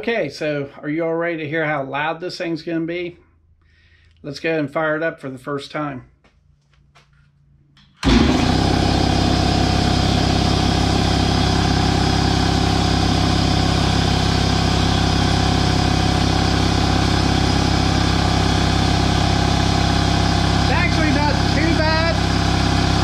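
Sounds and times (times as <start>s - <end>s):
electric air compressor running: 8.0s - 23.0s.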